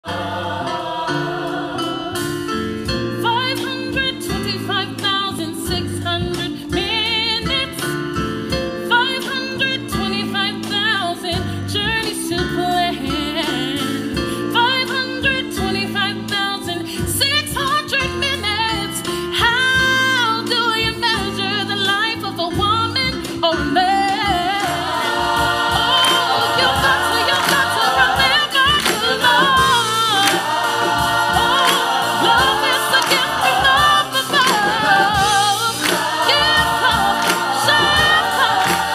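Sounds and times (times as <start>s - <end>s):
choir voices singing: 0.0s - 2.9s, 24.1s - 38.9s
band accompaniment: 0.0s - 38.9s
woman singing gospel-style solo: 25.7s - 30.4s, 31.3s - 38.9s.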